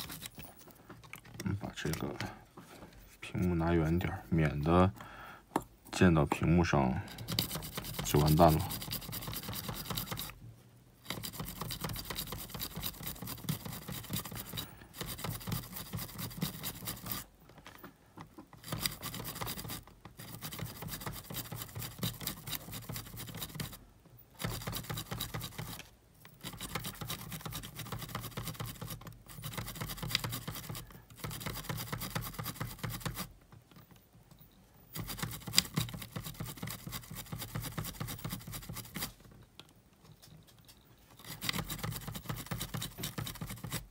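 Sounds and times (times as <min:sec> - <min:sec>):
foam swab scrubbing: 0:07.1 - 0:10.3.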